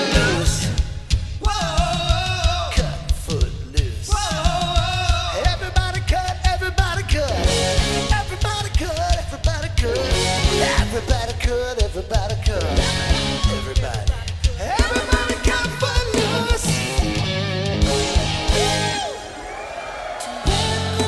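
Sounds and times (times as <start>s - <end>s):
keyboard: 0.0s - 1.0s, 14.8s - 21.0s
electric guitars: 0.0s - 1.2s, 7.2s - 8.7s, 9.8s - 11.4s, 12.4s - 21.0s
person singing: 0.0s - 3.1s, 3.8s - 19.5s, 20.1s - 21.0s
drum kit beat: 0.0s - 21.0s.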